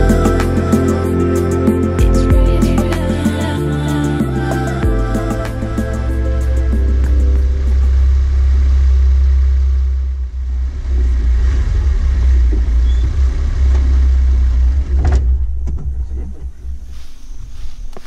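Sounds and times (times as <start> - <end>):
vehicle engine and road rumble: 4.9 - 18.0.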